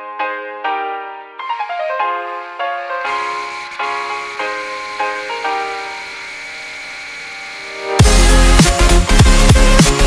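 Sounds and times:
keyboard background music: 0:00.0 - 0:10.0
steady hiss: 0:01.6 - 0:08.0.

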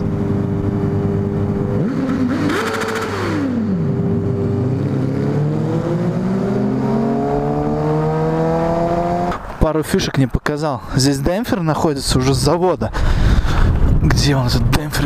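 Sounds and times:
motorcycle engine revving: 0:00.0 - 0:09.4
motorcycle engines droning: 0:00.0 - 0:09.6.

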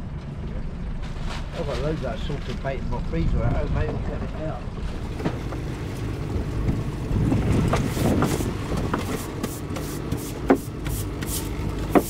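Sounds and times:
low steady rumble: 0:00.0 - 0:12.0
deck brush scrubbing wet deck: 0:05.0 - 0:12.0.

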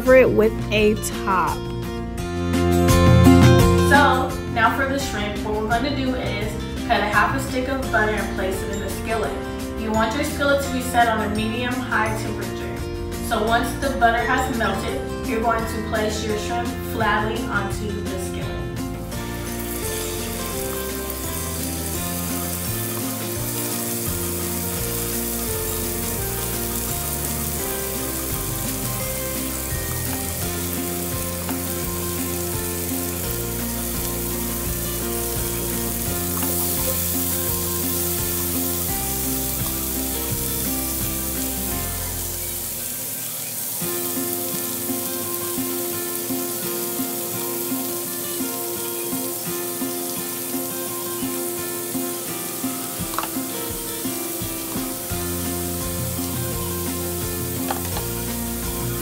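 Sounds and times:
background music: 0:00.0 - 0:59.0
shrimp sizzling in butter: 0:18.2 - 0:59.0.

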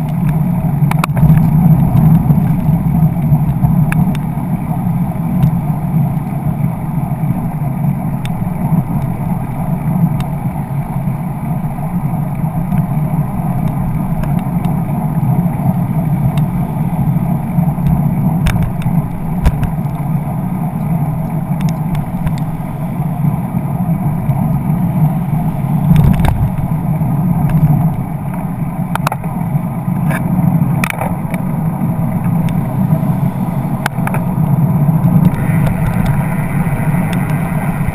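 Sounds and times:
car traffic: 0:00.0 - 0:37.9
road rumble: 0:00.0 - 0:37.9
wind rush: 0:00.0 - 0:37.9.

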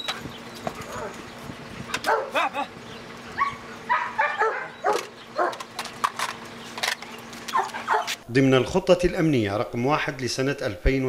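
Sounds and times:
dog whining and yipping: 0:03.3 - 0:05.6, 0:07.5 - 0:08.2.

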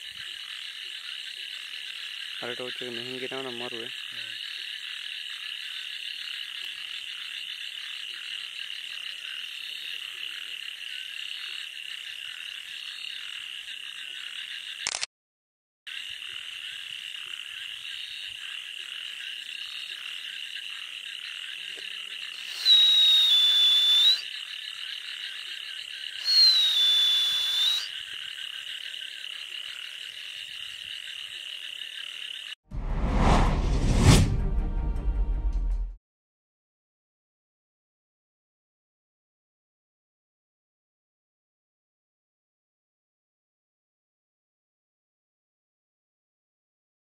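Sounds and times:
frogs trilling: 0:00.0 - 0:14.9, 0:15.9 - 0:32.6
loud high frog calls: 0:00.0 - 0:15.0, 0:15.9 - 0:32.6.

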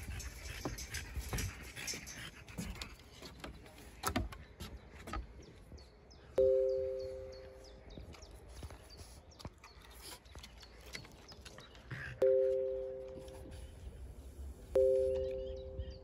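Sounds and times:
two-note chime: 0:06.4 - 0:07.9, 0:12.2 - 0:13.7, 0:14.8 - 0:16.0.

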